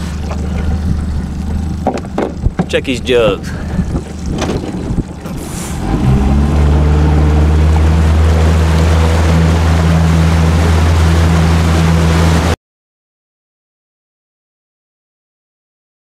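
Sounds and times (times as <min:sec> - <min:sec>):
boat motor running: 0:00.0 - 0:12.6
water rushing along hull: 0:00.0 - 0:12.6.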